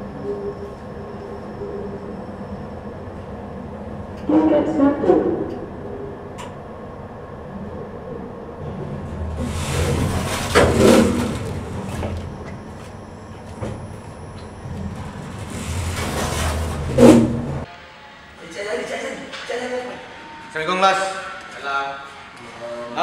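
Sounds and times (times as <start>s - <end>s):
lift humming: 0.0s - 23.0s
lift doors sliding open: 5.5s - 17.7s.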